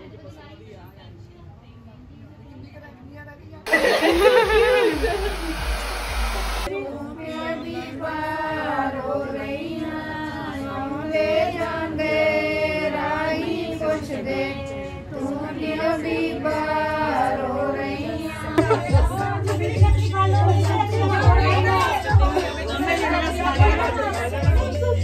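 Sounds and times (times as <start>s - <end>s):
voices: 3.7s - 25.0s
woman singing a song: 6.7s - 25.0s.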